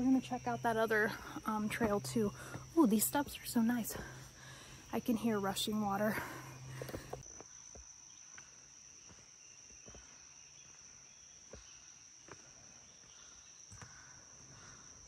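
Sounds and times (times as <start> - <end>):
crickets trilling: 0.0 - 15.0
footfalls on trail steps: 1.0 - 10.3.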